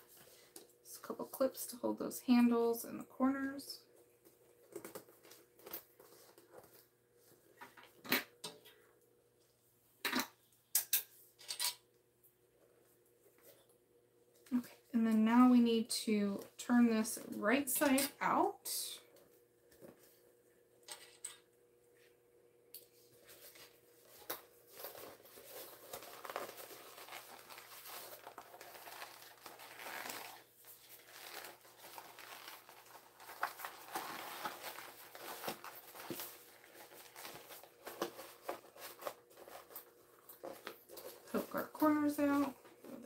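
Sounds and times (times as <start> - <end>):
bag rustling and crinkling: 23.1 - 43.0.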